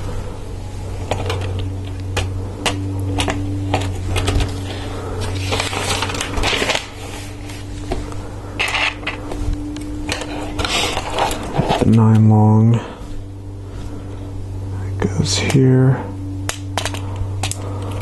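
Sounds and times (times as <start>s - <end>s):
low hum: 0.0s - 18.0s
plastic parts clicking: 16.5s - 18.0s.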